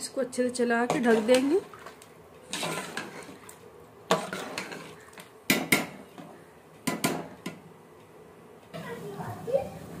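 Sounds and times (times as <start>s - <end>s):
spoon clinking and scraping pot: 0.8s - 6.3s.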